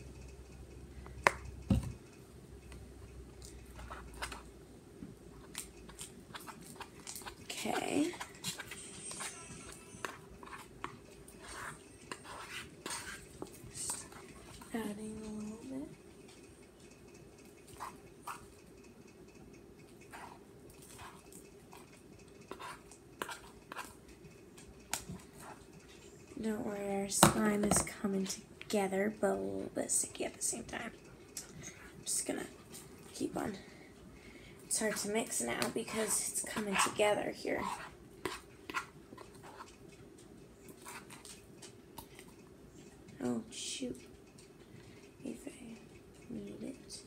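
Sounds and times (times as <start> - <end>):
spoon squelching sticky slime: 5.4 - 15.5, 19.8 - 24.1, 34.7 - 39.9
clicks and taps mixing in bowl: 34.6 - 39.9.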